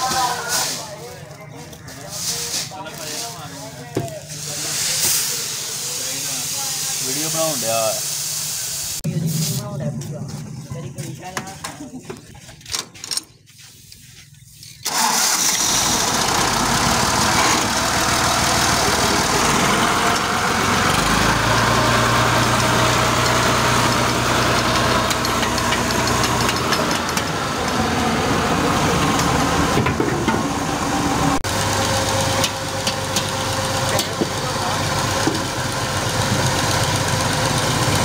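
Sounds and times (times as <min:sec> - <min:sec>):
deeper steady engine note: 0:09.0 - 0:11.4, 0:15.7 - 0:38.0
tractor diesel engine running: 0:14.6 - 0:38.0.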